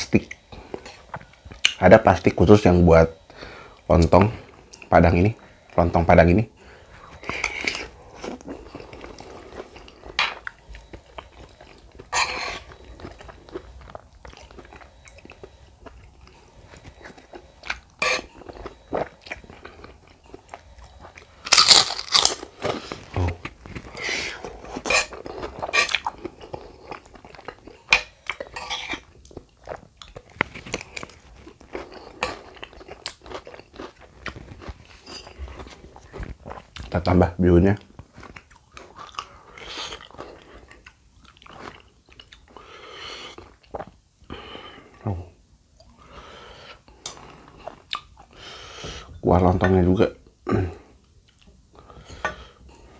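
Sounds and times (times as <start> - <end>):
chewing: 7.0 - 37.0, 37.8 - 42.7, 46.9 - 48.4
cracker crunching: 7.2 - 28.5.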